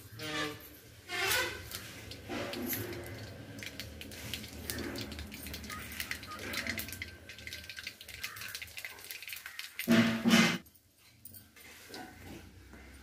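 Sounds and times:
seeds crackling in hot oil: 1.1 - 10.4.

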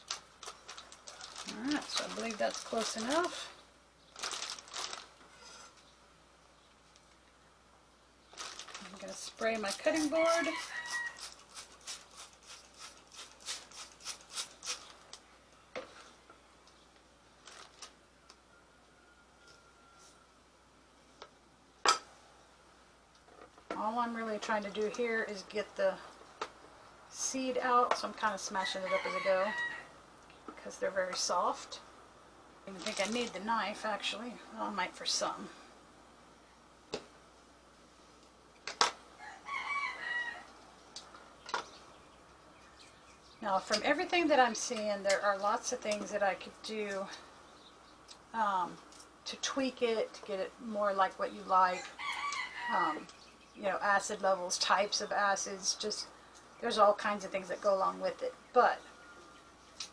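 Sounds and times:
spray bottle spritzing: 9.6 - 15.0
rooster crowing: 10.5 - 11.3, 18.2 - 20.4, 28.6 - 30.0, 39.2 - 40.6, 51.8 - 53.0.

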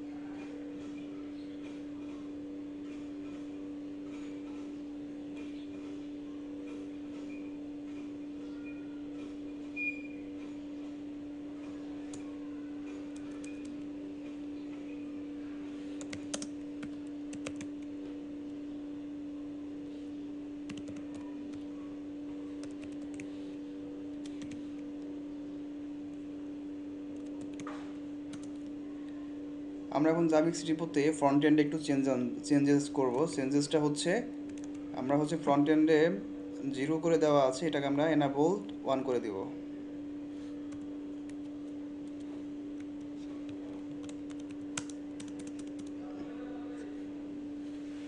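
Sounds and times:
steady low hum: 0.0 - 48.0
keyboard typing: 12.0 - 13.9, 16.0 - 17.9, 20.6 - 21.7, 22.5 - 23.4, 24.1 - 25.1, 27.1 - 28.7, 34.5 - 34.8, 40.7 - 46.0.

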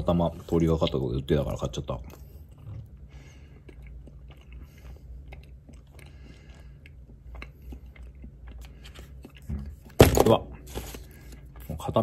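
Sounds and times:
low steady hum: 0.0 - 12.0
person chewing: 0.4 - 12.0.

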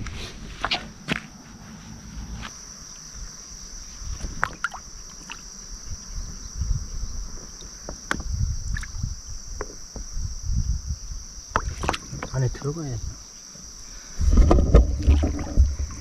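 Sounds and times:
high-pitched insect drone: 1.8 - 14.4
stream water sloshing: 4.1 - 6.2, 11.6 - 12.4, 14.3 - 16.0.

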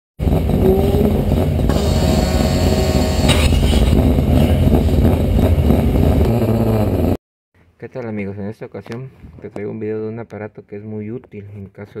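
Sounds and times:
car engine running: 0.2 - 7.2.

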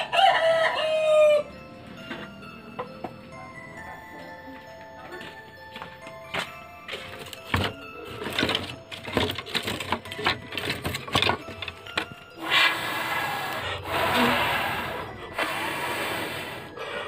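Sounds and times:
air blown through a pipe: 12.4 - 17.0.

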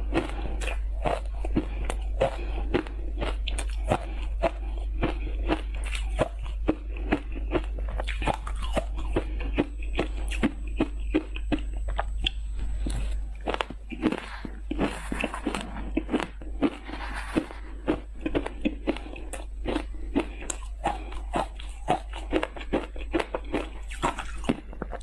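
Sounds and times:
person crunching ice: 13.5 - 25.0.

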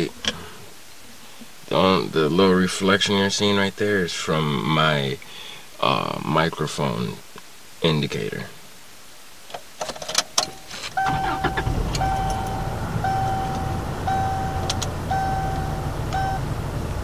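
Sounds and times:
car engine starting and running: 10.4 - 17.0
dashboard warning chime beeping: 10.5 - 16.5
clicks: 14.6 - 14.9.

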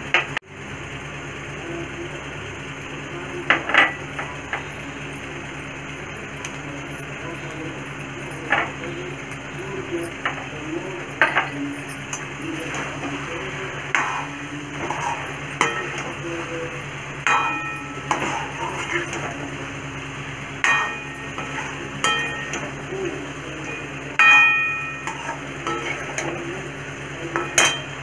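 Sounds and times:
spatula scraping thick curry: 12.6 - 16.5, 17.9 - 19.3, 20.8 - 22.6, 25.1 - 26.2
spatula knocking metal pan: 13.9 - 16.5, 17.2 - 19.3, 20.6 - 22.9, 24.2 - 26.4, 27.3 - 28.0.

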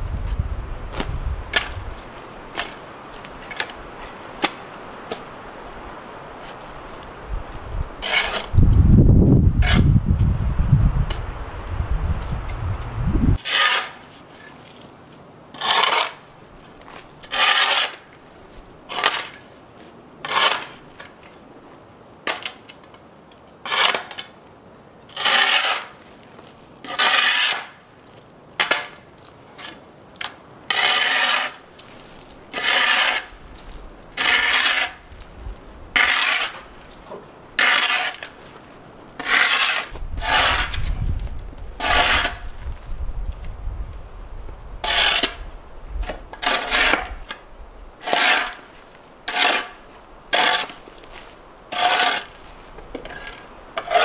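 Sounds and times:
shovel blade scraping dirt: 0.9 - 5.3, 8.0 - 8.6, 9.6 - 10.0, 13.4 - 18.2, 18.9 - 19.5, 20.2 - 21.2, 23.6 - 24.3, 25.1 - 26.0, 26.8 - 27.9, 28.6 - 41.1, 41.8 - 42.6, 44.8 - 45.4, 46.0 - 47.4, 48.0 - 54.0.

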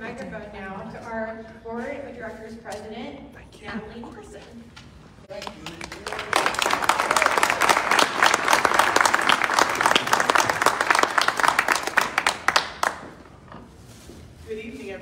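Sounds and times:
audience applauding: 5.3 - 13.2.

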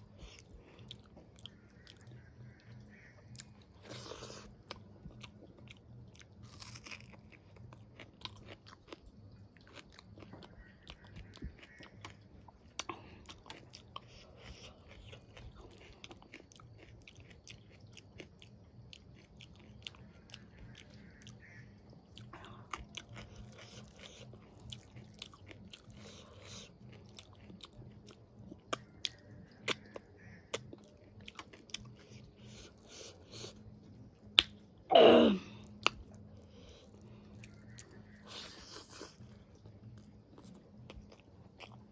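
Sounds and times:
chewing and biting food: 0.0 - 34.6, 35.6 - 41.9
wet mouth clicks and lip smacks: 34.4 - 34.6.

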